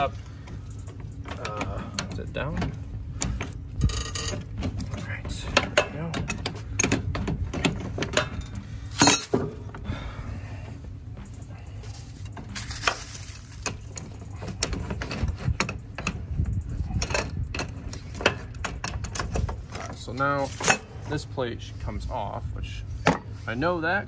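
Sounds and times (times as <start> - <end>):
wrench clinking on metal: 3.2 - 4.5.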